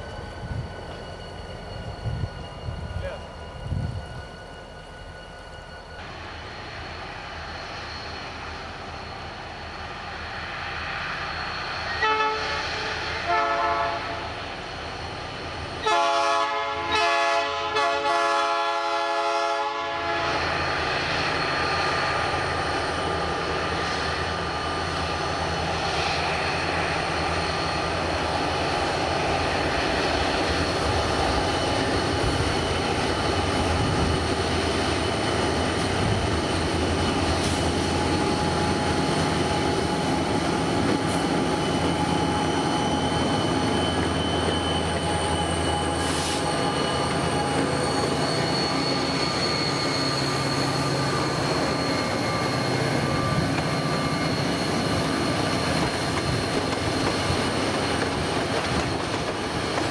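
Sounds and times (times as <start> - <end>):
train rumble: 0.0 - 59.9
locomotive air horn blasts: 12.0 - 14.3, 15.8 - 20.3.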